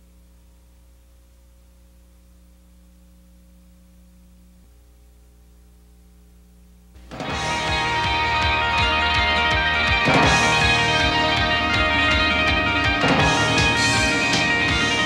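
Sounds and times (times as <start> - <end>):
low electrical hum: 0.0 - 7.3
rock music with electric guitar: 7.0 - 15.0.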